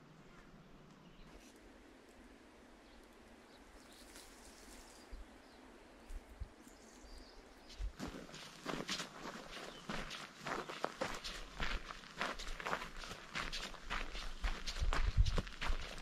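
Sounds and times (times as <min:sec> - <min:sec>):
soft hiss: 0:00.0 - 0:07.9.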